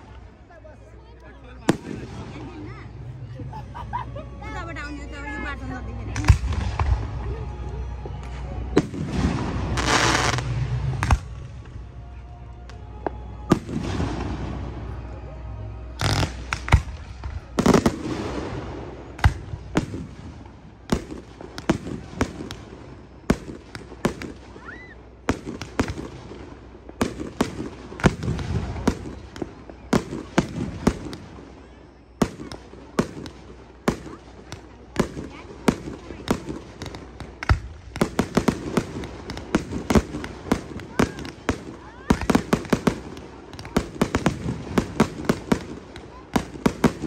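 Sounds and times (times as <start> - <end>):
firework bangs: 1.6 - 2.8, 8.2 - 11.7, 13.5 - 15.1, 15.9 - 47.0
firework crackling hiss: 8.8 - 11.6, 16.0 - 24.8.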